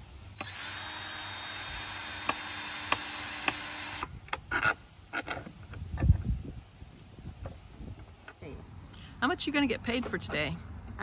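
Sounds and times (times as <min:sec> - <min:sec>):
cordless drill running: 0:00.3 - 0:04.1.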